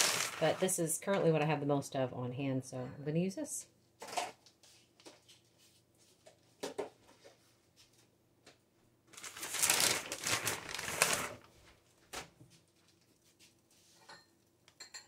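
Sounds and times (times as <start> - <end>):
plastic bag crinkling: 0.0 - 0.7, 9.1 - 11.6.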